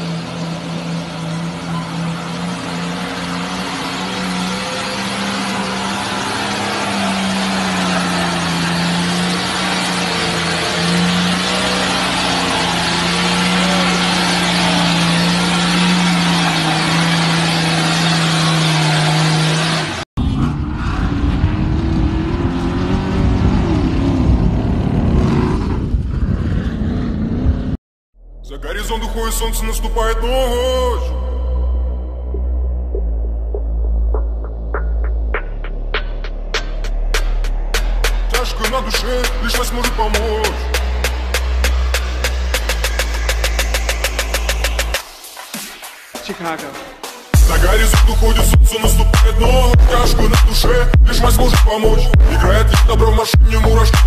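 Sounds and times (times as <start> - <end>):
suv engine running under load: 0.0 - 20.1
heavy low rumble: 20.2 - 45.0, 47.4 - 54.0.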